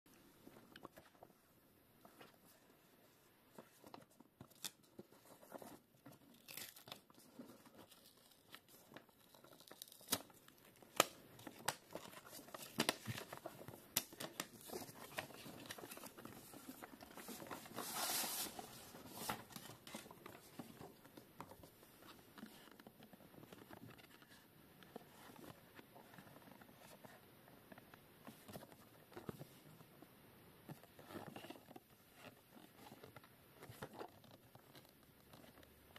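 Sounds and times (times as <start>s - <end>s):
packaging rustling and crinkling: 3.5s - 25.6s.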